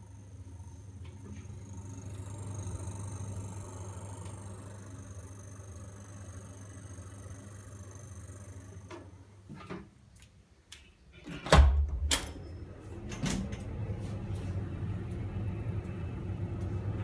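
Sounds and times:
steady low background noise: 0:00.0 - 0:11.2.

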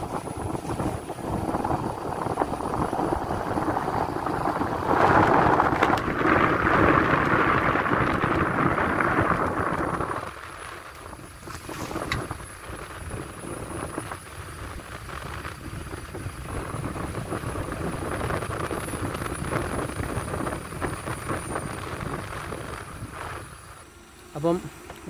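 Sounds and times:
wind buffeting microphone: 0:00.0 - 0:23.9
vehicle driving: 0:00.0 - 0:25.0.

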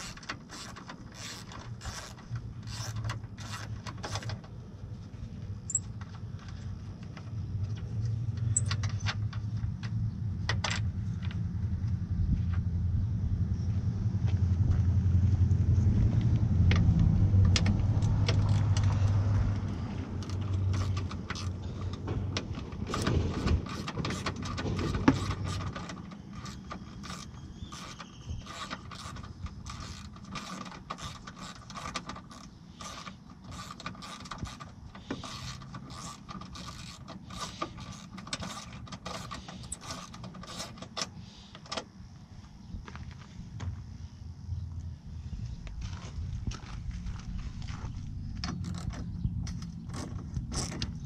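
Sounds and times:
hand ratchet clicking: 0:00.0 - 0:04.3, 0:22.8 - 0:41.1
low vehicle rumble: 0:00.0 - 0:51.0.

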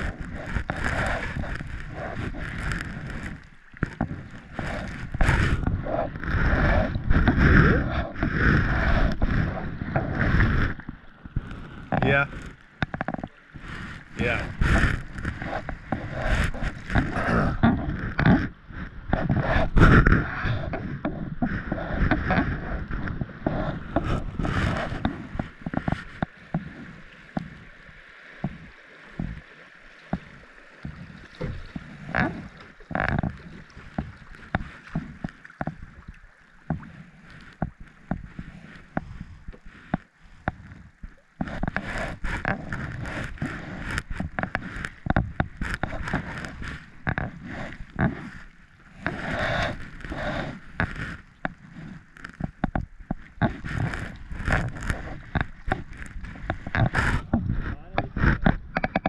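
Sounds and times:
paddle strokes splashing: 0:00.0 - 0:59.0.

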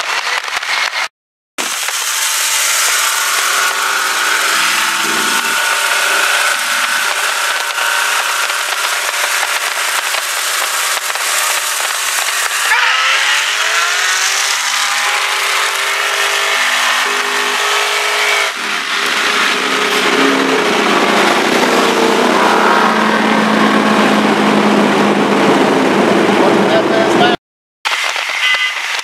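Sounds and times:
road noise: 0:00.0 - 0:29.0
car engines accelerating hard: 0:01.6 - 0:27.4
wind noise: 0:04.1 - 0:13.5.

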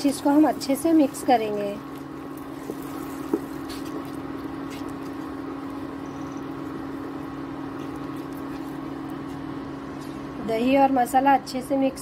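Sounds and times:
induction cooktop hum: 0:00.0 - 0:12.0.

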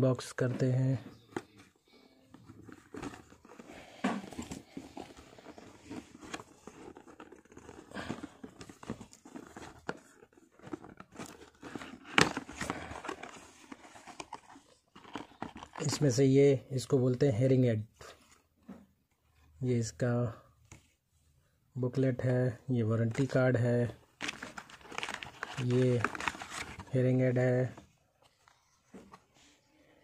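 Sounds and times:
paper inserts crinkling: 0:02.4 - 0:16.2, 0:24.2 - 0:29.2.

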